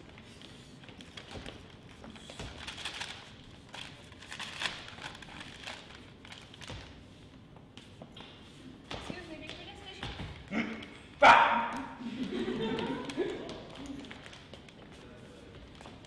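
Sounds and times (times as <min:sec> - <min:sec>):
paper rustling and crinkling: 0:00.3 - 0:07.2, 0:13.0 - 0:16.0.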